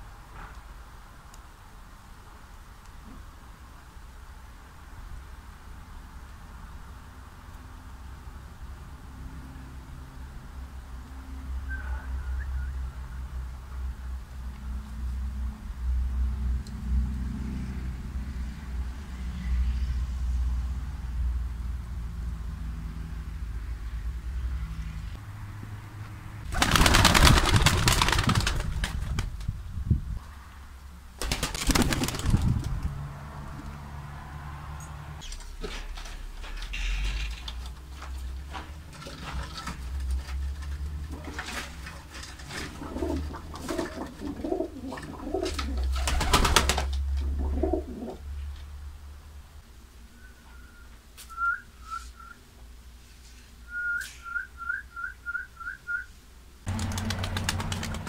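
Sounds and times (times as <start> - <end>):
person whistling short notes: 11.6 - 12.9, 50.1 - 52.4, 53.7 - 56.1
pigeon wings flapping: 26.5 - 29.6, 31.2 - 33.0, 39.0 - 48.1, 56.7 - 58.0.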